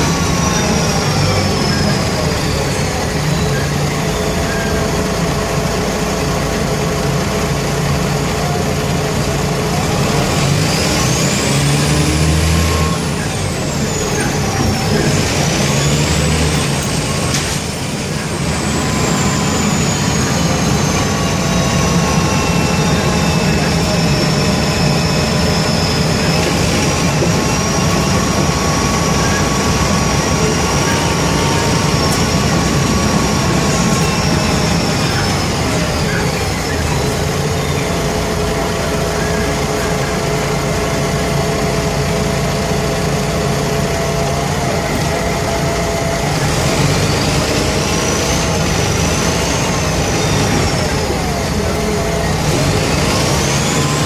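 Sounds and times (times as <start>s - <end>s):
bus diesel engine rumbling: 0.0s - 54.0s.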